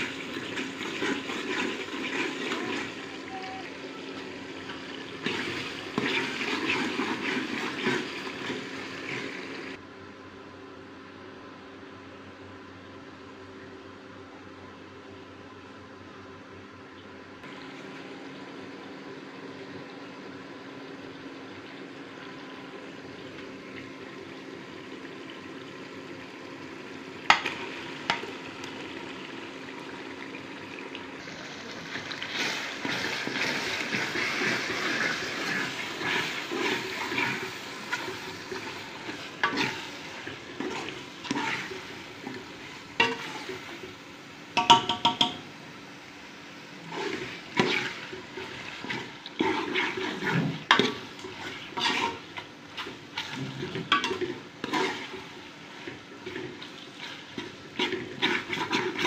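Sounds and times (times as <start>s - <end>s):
food sizzling in metal pot: 0.0s - 9.8s, 25.7s - 59.0s.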